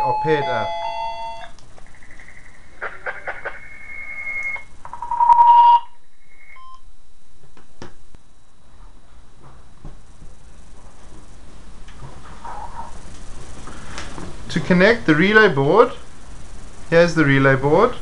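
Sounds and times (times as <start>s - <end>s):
intercom beeps: 0.0s - 1.5s, 3.6s - 6.8s
steady high electronic tone: 0.0s - 6.8s.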